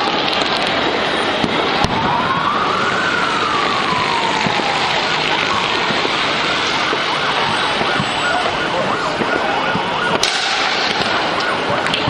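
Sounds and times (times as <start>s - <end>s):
fireworks crackling: 0.0s - 12.0s
fireworks whistling: 0.0s - 12.0s
sharp firework bang: 10.1s - 11.3s.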